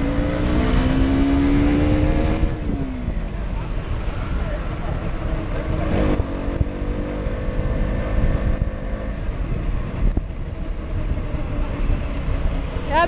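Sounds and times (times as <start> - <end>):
wind rumble on microphone: 0.0 - 13.0.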